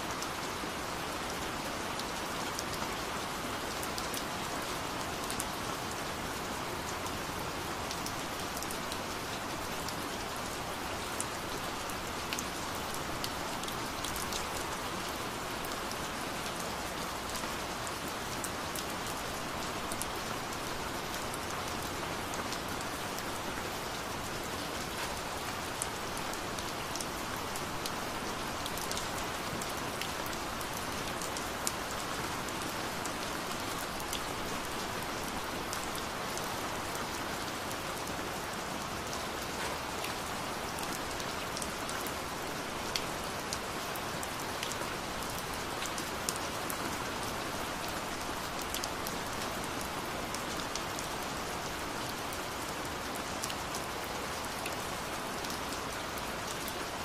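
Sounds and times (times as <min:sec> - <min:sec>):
steady rain: 0:00.0 - 0:57.0.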